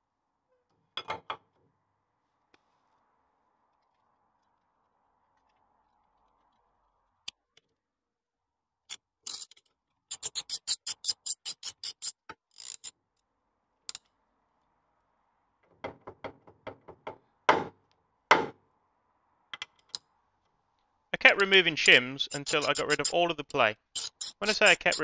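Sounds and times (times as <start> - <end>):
ratchet clicks: 10.1 - 12.9.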